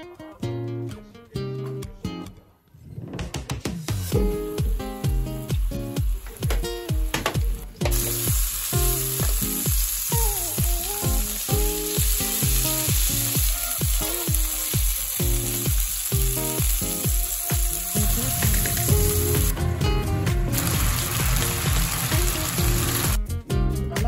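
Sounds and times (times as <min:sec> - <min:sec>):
background music with beat: 0:03.1 - 0:24.0
food sizzling in a frying pan: 0:04.1 - 0:19.6, 0:20.5 - 0:23.2.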